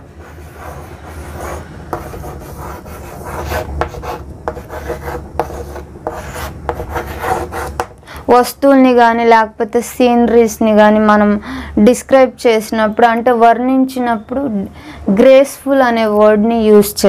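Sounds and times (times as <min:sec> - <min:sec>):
chalk scratching on chalkboard: 0:00.0 - 0:07.9.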